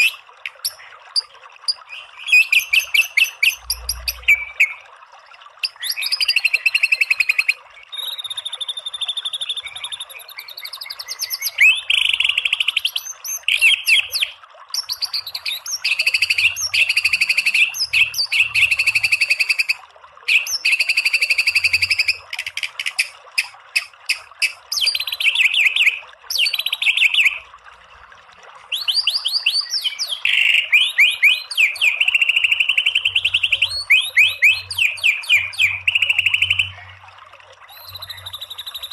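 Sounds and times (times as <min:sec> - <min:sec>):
songbird singing: 0:01.7 - 0:04.8, 0:05.6 - 0:23.0, 0:28.7 - 0:37.0, 0:37.7 - 0:38.9.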